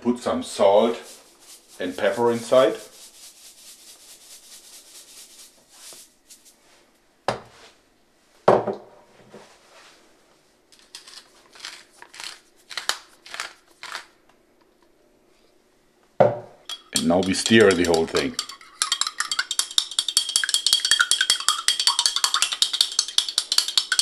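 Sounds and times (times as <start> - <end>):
salt shaker rattling: 0.5 - 6.8, 10.8 - 14.2, 16.7 - 24.0
pepper mill grinding: 1.0 - 6.6, 10.7 - 14.2, 16.7 - 24.0.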